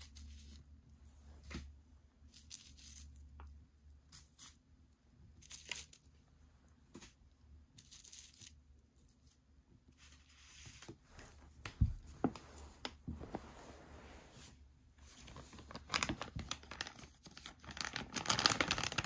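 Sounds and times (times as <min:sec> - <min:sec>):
plastic rustling and crinkling: 0:10.0 - 0:19.0.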